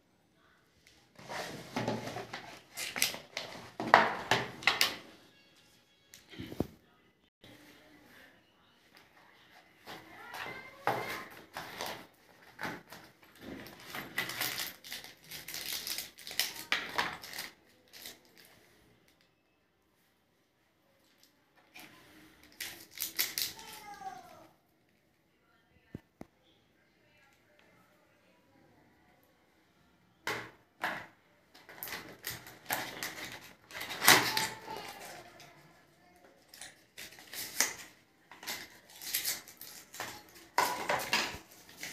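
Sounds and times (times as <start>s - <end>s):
plastic bags crinkling: 13.5s - 18.5s.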